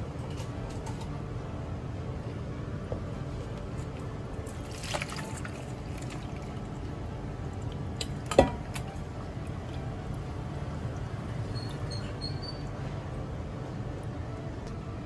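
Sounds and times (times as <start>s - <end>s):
steady low hum: 0.0s - 15.0s
liquid splashing and trickling: 3.8s - 12.8s.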